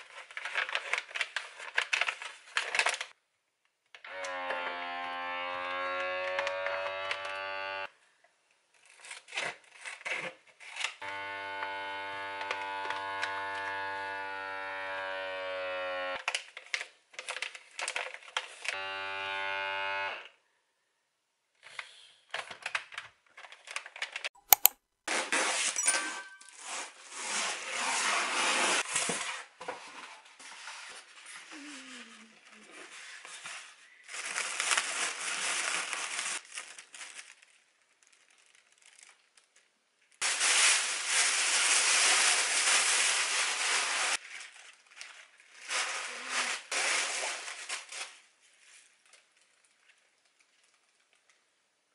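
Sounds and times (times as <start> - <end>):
sharp click: 24.4 - 24.8
plastic bag crinkling: 33.9 - 51.4.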